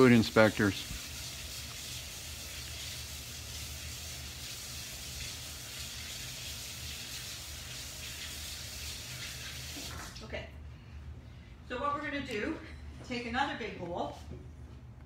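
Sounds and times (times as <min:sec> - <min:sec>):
faucet water splashing on hands: 0:00.0 - 0:10.2.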